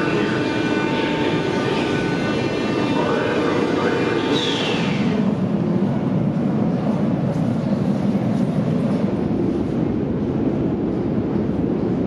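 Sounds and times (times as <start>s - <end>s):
low rumble of metro machinery: 0.0s - 12.0s.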